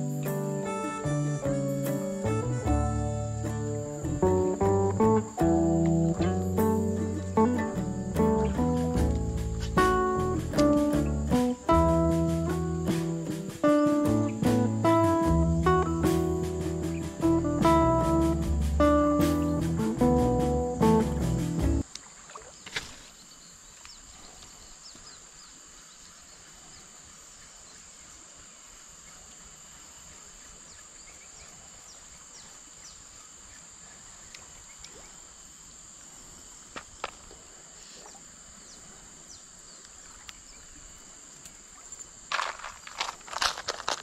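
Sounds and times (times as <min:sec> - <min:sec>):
high-pitched insect drone: 0:00.0 - 0:21.6
knocks and rustles: 0:42.3 - 0:44.0.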